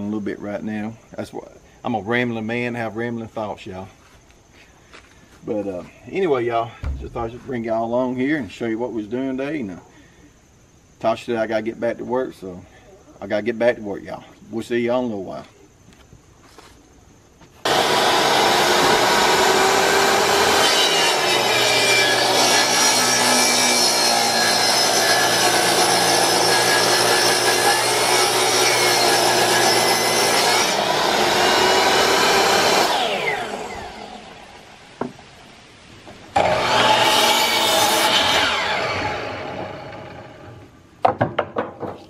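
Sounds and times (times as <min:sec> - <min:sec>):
table saw ripping a board: 0:17.7 - 0:34.0, 0:36.4 - 0:40.5
miter saw cutting: 0:17.7 - 0:34.4, 0:36.4 - 0:40.6.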